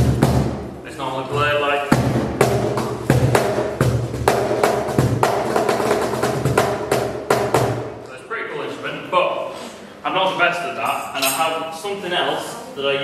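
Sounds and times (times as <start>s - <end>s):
cajon played by hand: 0.0s - 0.7s, 1.3s - 7.9s.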